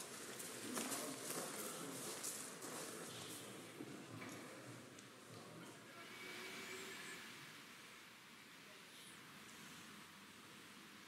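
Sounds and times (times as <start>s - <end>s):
faint thin steady tone: 5.6s - 10.1s.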